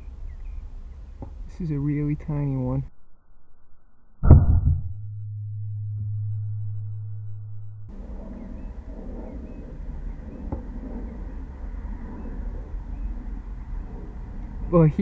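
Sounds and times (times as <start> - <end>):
low electrical hum: 4.2 - 15.0
steady low rumble: 4.2 - 15.0.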